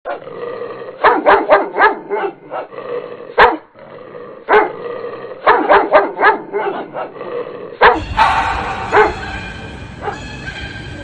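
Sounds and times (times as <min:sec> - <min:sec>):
dog barking: 0:01.0 - 0:02.7, 0:03.4 - 0:03.7, 0:04.5 - 0:04.8, 0:05.4 - 0:07.2, 0:07.8 - 0:10.9.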